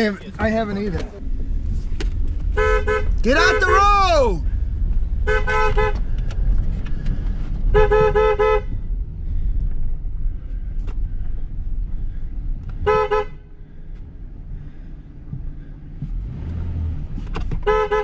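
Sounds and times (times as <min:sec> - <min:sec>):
vehicle horn short toots: 0:02.6 - 0:03.8, 0:05.3 - 0:06.1, 0:07.7 - 0:08.7, 0:12.8 - 0:13.4, 0:17.6 - 0:18.0.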